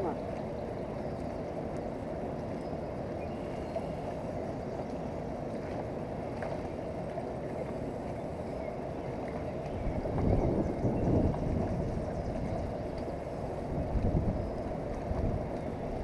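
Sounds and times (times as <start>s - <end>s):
wind buffeting microphone: 9.6s - 16.0s.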